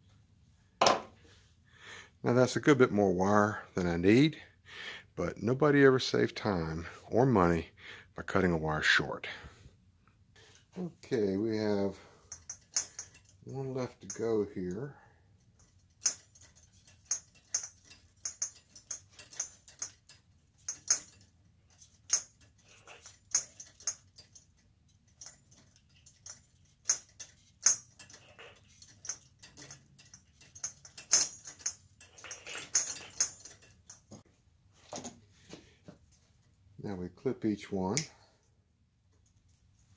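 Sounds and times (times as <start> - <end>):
light clicks and rattles of metal parts: 9.3 - 39.9.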